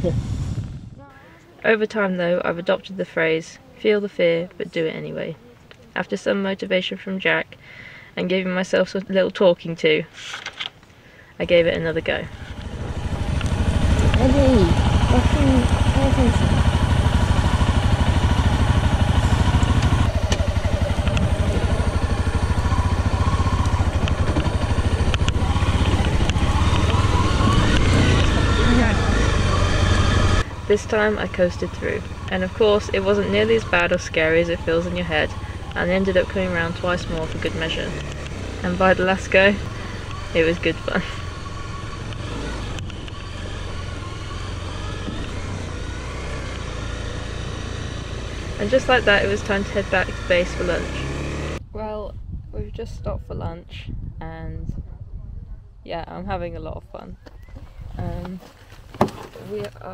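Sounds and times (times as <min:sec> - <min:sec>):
motorbike engine at low revs: 0:00.0 - 0:01.1, 0:11.5 - 0:51.9.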